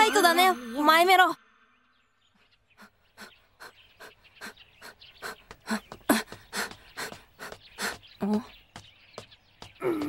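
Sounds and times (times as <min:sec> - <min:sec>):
running footsteps: 0:04.0 - 0:10.0.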